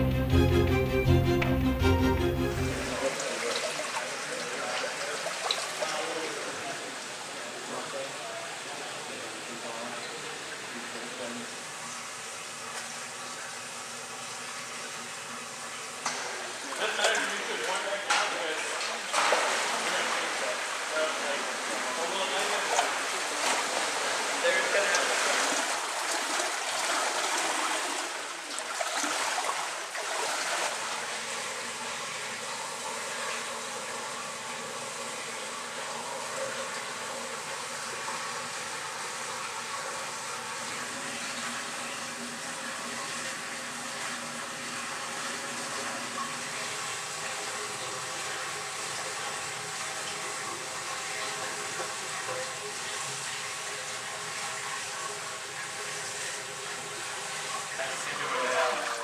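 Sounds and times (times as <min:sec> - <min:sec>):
water splashing: 0:02.8 - 0:07.1, 0:16.1 - 0:41.6.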